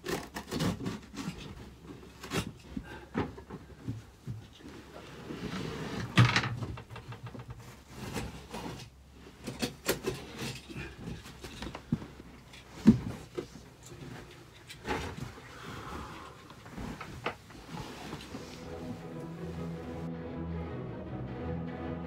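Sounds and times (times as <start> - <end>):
carpet roll pushed across floor: 4.7 - 6.3, 11.3 - 20.1.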